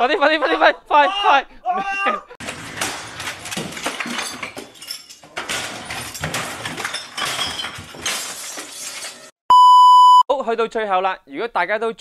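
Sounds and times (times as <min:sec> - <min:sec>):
clinking crashing clatter: 0:02.4 - 0:09.4.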